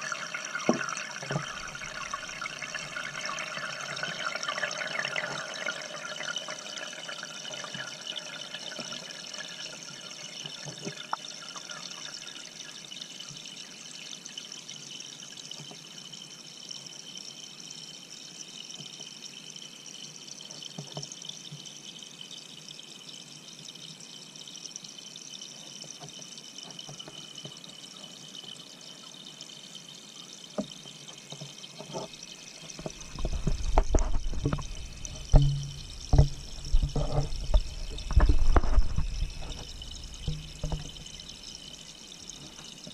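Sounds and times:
water pouring underwater: 0:00.0 - 0:13.5, 0:31.2 - 0:42.9
thumps: 0:32.7 - 0:41.8.

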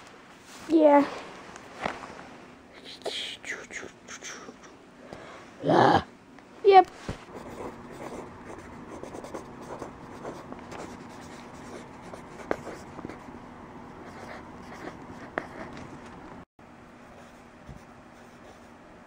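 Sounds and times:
pen scratching on paper: 0:07.3 - 0:13.3, 0:14.0 - 0:15.8.

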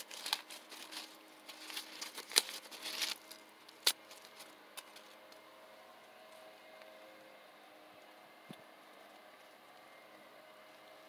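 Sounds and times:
dry corn husks crackling and tearing: 0:00.0 - 0:06.9.

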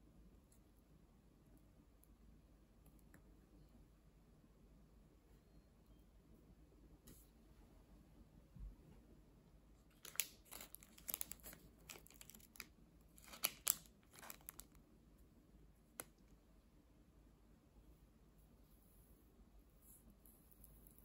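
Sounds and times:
plastic wrapper crinkling: 0:09.9 - 0:14.8.

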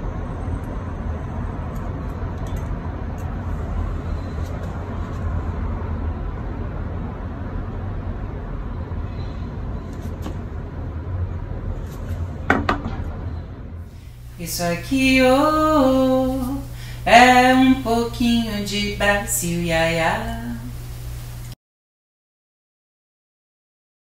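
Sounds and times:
vehicle engine and road noise: 0:00.0 - 0:14.2.

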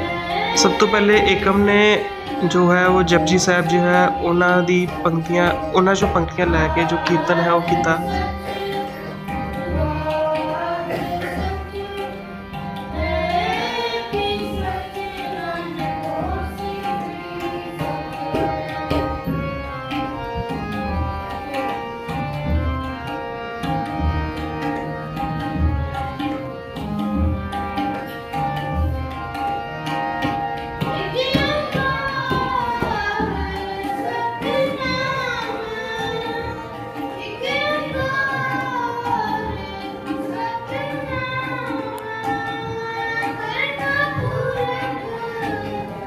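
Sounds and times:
boy singing: 0:00.0 - 0:19.7, 0:30.8 - 0:46.0
harmonium held tones: 0:00.0 - 0:46.0
tabla rhythm: 0:00.0 - 0:46.0.

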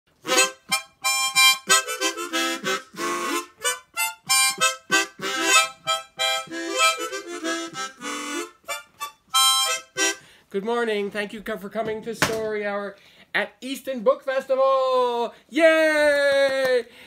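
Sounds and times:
harmonica playing lively tune: 0:00.1 - 0:10.4.

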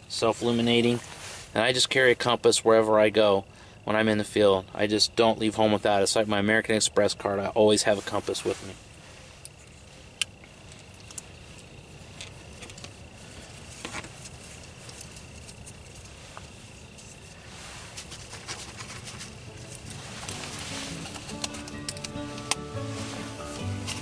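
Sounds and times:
rustling: 0:07.9 - 0:24.0.

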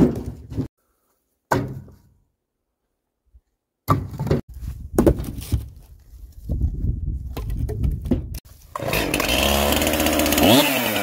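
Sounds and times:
logs thudding into metal trailer: 0:01.5 - 0:02.1.

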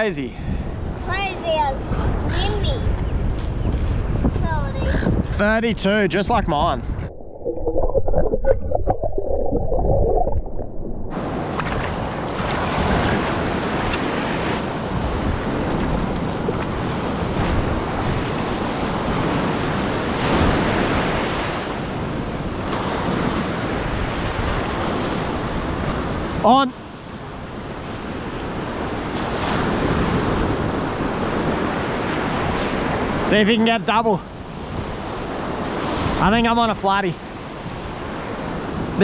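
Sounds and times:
wind on microphone: 0:00.3 - 0:33.2
muffled underwater water movement: 0:06.3 - 0:12.4
surf breaking on sand: 0:11.1 - 0:26.6.

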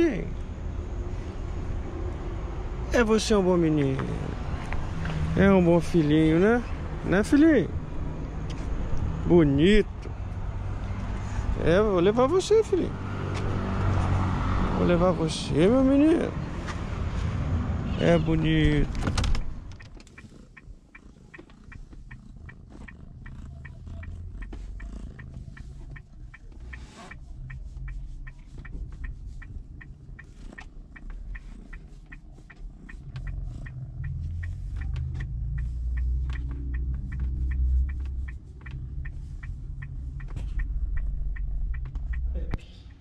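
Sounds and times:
light regular ticking: 0:18.0 - 0:43.0
cat purring: 0:20.0 - 0:39.4.

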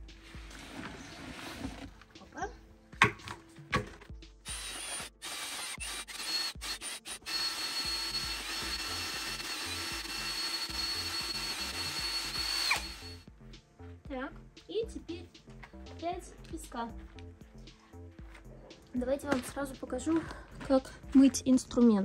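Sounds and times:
electric drill mixing mortar: 0:04.4 - 0:13.2.

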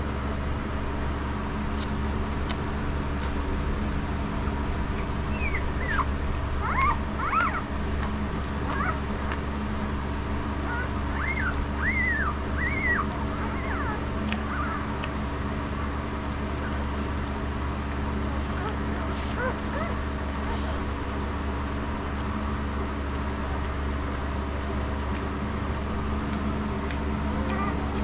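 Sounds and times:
steady low hum: 0:00.0 - 0:28.0
puppies squeaking and whimpering: 0:05.0 - 0:07.8, 0:08.6 - 0:09.1, 0:10.6 - 0:15.1, 0:16.4 - 0:17.2, 0:18.4 - 0:20.8, 0:27.4 - 0:28.0.

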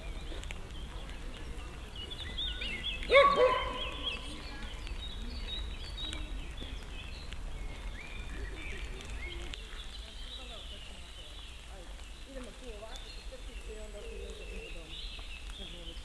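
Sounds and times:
faint outdoor hiss: 0:00.0 - 0:16.0
songbirds chirping: 0:00.0 - 0:16.0
dog barking: 0:03.1 - 0:04.0.

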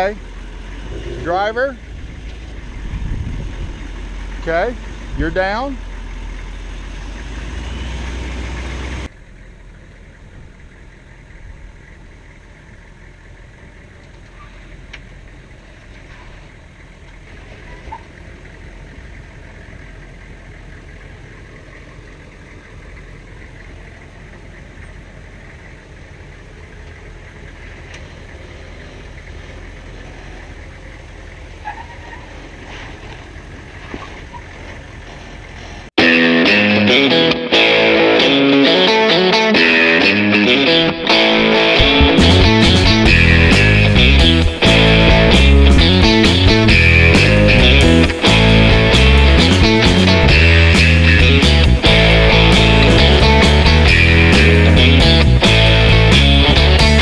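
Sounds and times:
vehicle engine crawling over rock: 0:08.4 - 0:35.9.

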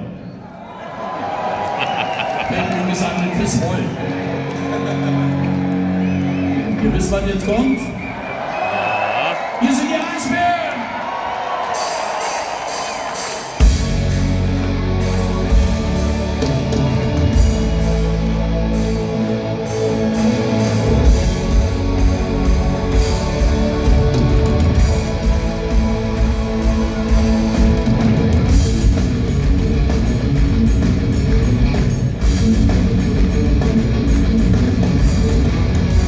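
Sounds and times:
electric guitars: 0:01.8 - 0:07.3, 0:11.8 - 0:36.0
drums: 0:04.7 - 0:36.0
bass guitar: 0:13.6 - 0:36.0.

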